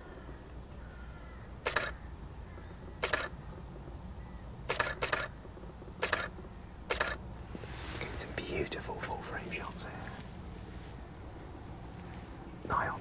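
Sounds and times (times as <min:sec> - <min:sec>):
camera shutter clicks: 0:01.6 - 0:02.0, 0:03.0 - 0:03.3, 0:04.7 - 0:05.3, 0:06.0 - 0:06.3, 0:06.9 - 0:07.2.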